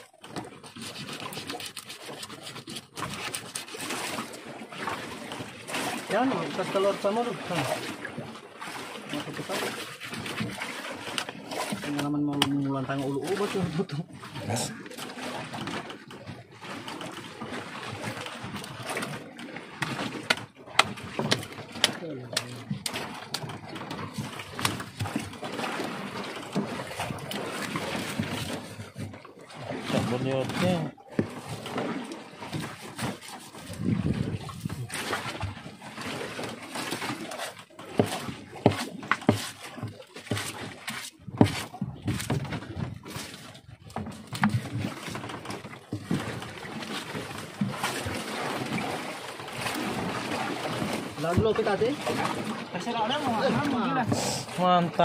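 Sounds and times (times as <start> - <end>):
knives cutting fish flesh: 0.9 - 3.7.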